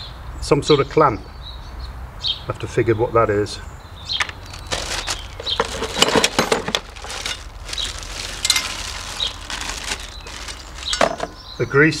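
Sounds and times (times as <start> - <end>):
handling clicks and knocks: 4.2 - 11.4
plastic bag crinkling: 4.3 - 11.4.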